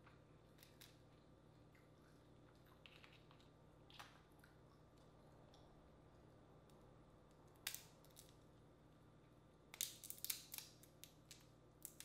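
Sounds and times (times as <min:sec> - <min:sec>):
crawfish shells cracking: 0:09.7 - 0:12.0.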